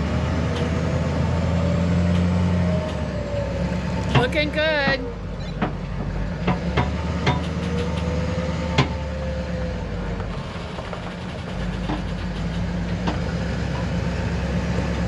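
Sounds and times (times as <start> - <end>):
pickup truck engine rumbling: 0.0 - 15.0
sharp clicks and knocks: 4.0 - 8.2, 8.8 - 9.0, 10.2 - 13.9.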